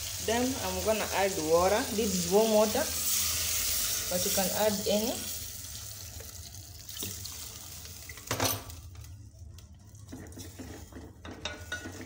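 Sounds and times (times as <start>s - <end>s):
water pouring into a pot: 5.2s - 8.3s
wooden spoon stirring and scraping: 9.2s - 12.0s.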